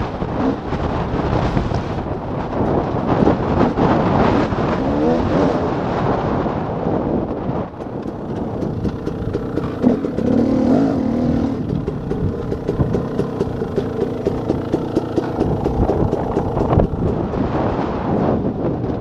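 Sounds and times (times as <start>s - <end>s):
dirt bike engine idling: 7.5s - 18.4s.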